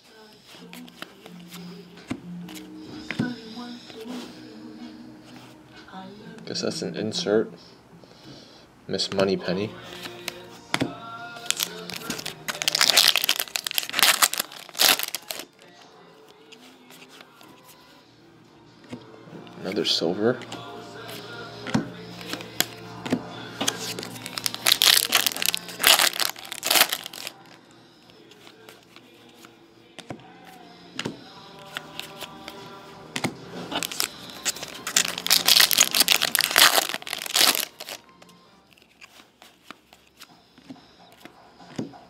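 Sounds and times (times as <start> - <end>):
faint music: 0.0 - 42.0.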